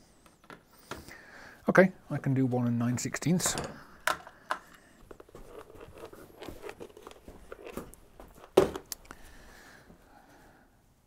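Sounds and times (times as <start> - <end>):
rustling and small clicks: 3.6 - 9.2
plastic box set down on wood: 7.7 - 8.9.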